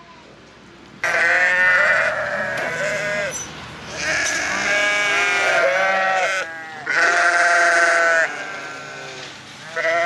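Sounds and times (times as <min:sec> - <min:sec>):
sheep bleating: 0:01.0 - 0:10.0.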